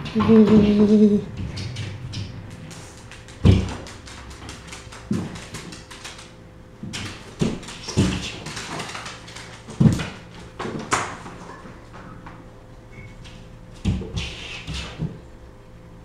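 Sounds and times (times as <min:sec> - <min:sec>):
claws clicking on floorboards: 0:01.5 - 0:11.4
paws thumping on wooden floor: 0:03.1 - 0:06.0.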